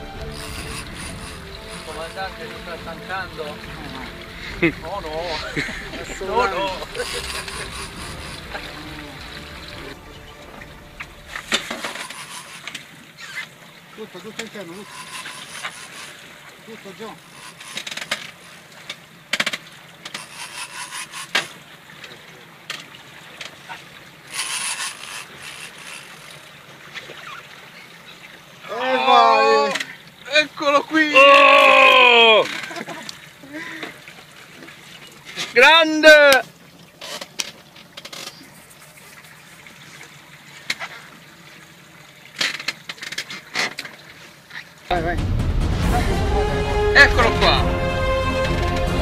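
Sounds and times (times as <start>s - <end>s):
water sloshing against boat: 0.0s - 44.9s
fishing reel winding in line: 0.2s - 2.3s, 6.8s - 8.6s, 11.4s - 13.4s, 14.7s - 16.3s, 17.1s - 18.7s, 20.1s - 21.6s, 24.2s - 26.6s.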